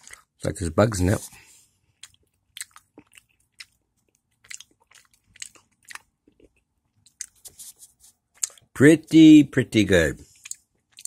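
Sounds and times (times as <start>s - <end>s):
person chewing with mouth clicks: 0.0s - 0.4s, 1.9s - 7.5s, 8.3s - 8.7s, 10.3s - 11.0s.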